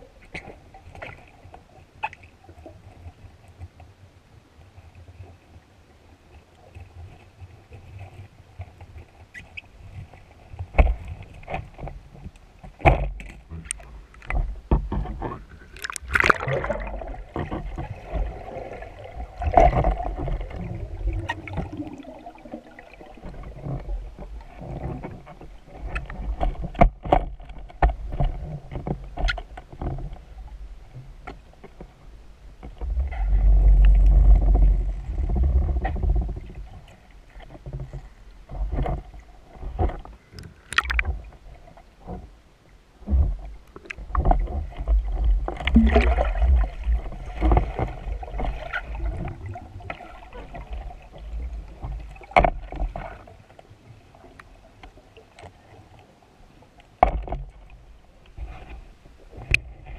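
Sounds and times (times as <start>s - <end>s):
underwater water movement: 4.8s - 59.9s.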